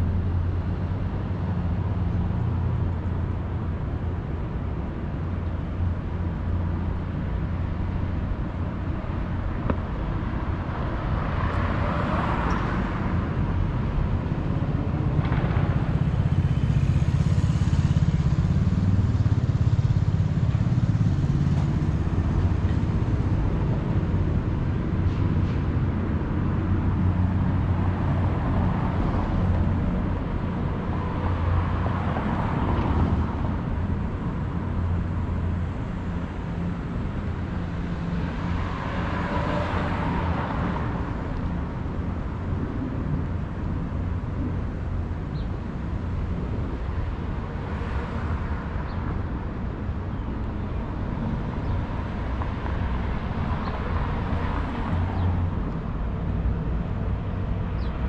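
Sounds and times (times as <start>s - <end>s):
road traffic rumble: 0.0s - 58.0s
vehicles passing: 0.0s - 58.0s.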